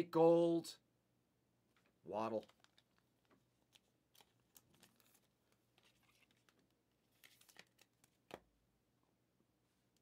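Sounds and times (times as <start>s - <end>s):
plastic sleeve crinkling: 2.3s - 8.4s.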